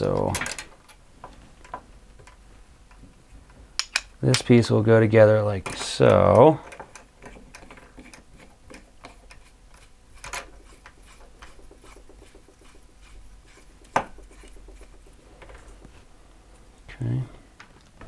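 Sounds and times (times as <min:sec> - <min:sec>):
plastic parts clicking and rubbing: 0:05.6 - 0:16.1.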